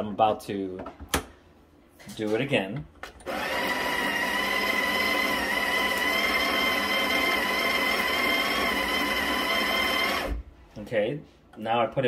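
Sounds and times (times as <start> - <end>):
coffee grinder motor whine: 3.2 - 10.4.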